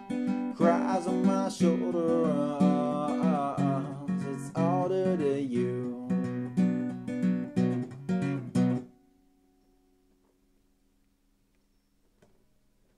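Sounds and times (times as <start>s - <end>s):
acoustic guitar strumming: 0.0s - 10.1s
person singing wordlessly: 0.4s - 6.8s.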